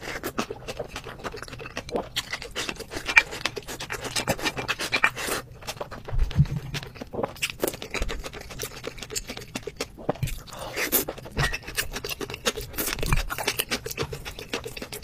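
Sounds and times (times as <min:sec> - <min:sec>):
wet chewing and mouth sounds: 0:00.0 - 0:15.0
low thuds: 0:06.1 - 0:06.8.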